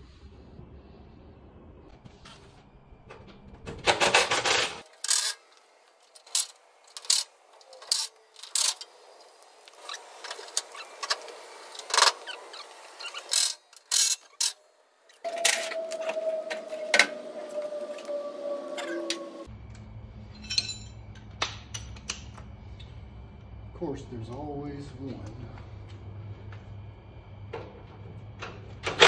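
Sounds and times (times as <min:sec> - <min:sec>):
cordless drill whine: 0:15.2 - 0:19.5.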